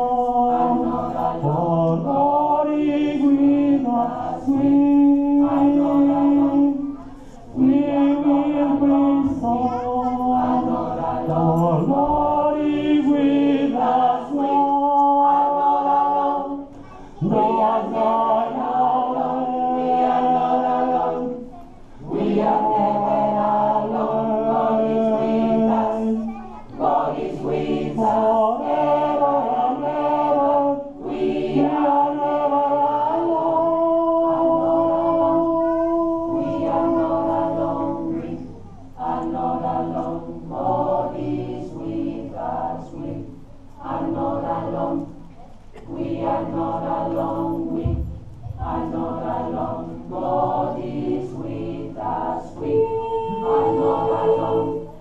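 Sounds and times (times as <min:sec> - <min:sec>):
gospel choir singing: 0:00.0 - 0:55.0.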